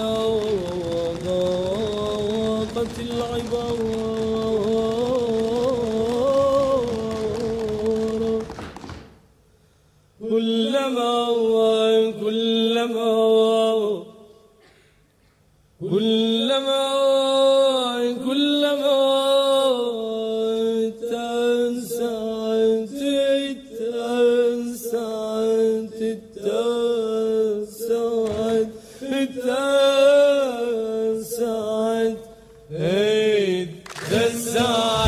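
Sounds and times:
solo voice chanting: 15.8s - 35.0s.

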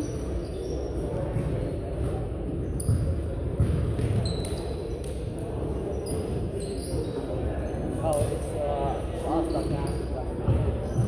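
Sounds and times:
sneakers squeaking: 0.0s - 8.3s, 9.3s - 11.0s
basketball bouncing: 2.9s - 4.2s.

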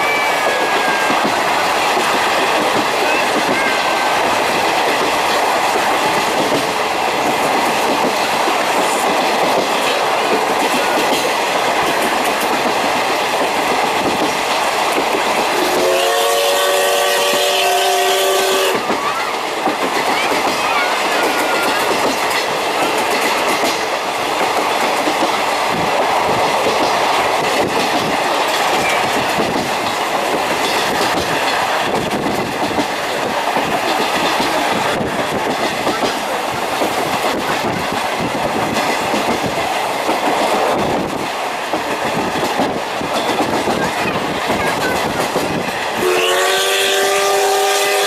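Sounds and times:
steam locomotive whistle: 0.0s - 1.3s, 15.6s - 18.9s, 46.0s - 48.0s
train wheels clicking over rail joints: 0.0s - 48.0s.

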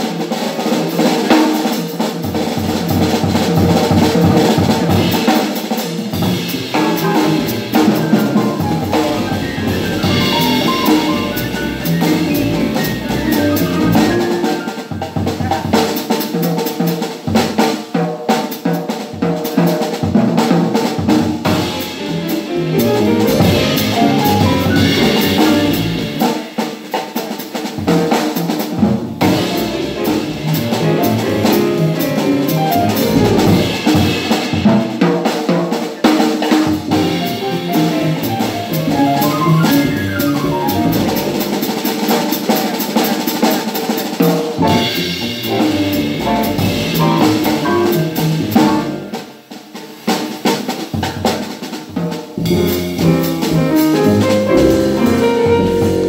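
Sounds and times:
grand piano: 0.0s - 16.2s, 19.8s - 26.6s, 28.8s - 35.8s, 36.4s - 49.3s, 52.3s - 56.0s
drum kit: 0.0s - 56.0s
upright double bass: 6.2s - 14.4s, 21.5s - 26.2s, 29.2s - 34.0s, 36.9s - 41.7s, 44.6s - 49.2s, 52.4s - 56.0s.

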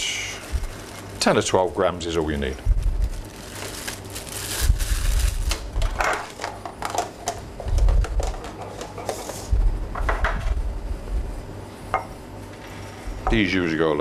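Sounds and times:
plastic bag rustling: 0.0s - 6.6s.

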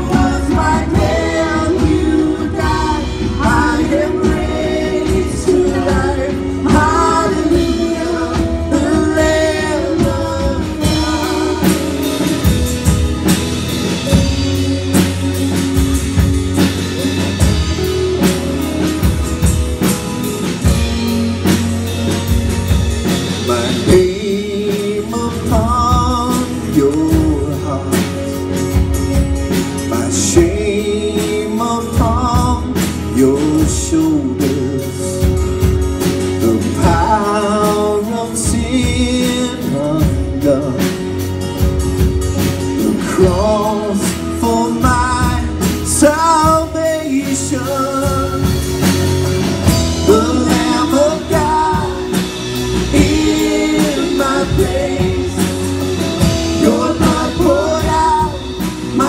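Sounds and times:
men and women singing together: 0.0s - 13.0s, 23.2s - 28.2s, 29.9s - 35.4s, 36.4s - 41.0s, 42.8s - 59.0s
acoustic guitars: 0.0s - 59.0s
drum kit: 0.0s - 59.0s
electric guitar: 0.0s - 59.0s.

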